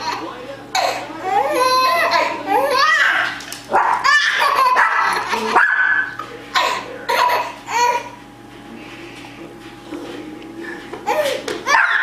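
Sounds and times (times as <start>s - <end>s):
small dog barking: 3.0s - 6.1s, 11.7s - 12.0s.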